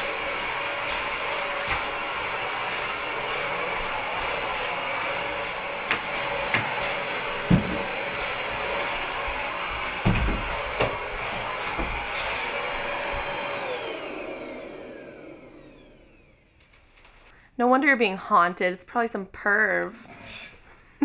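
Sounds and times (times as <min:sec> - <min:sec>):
vacuum cleaner running: 0:00.0 - 0:16.7
knocks and thumps: 0:07.4 - 0:08.0, 0:09.8 - 0:12.1.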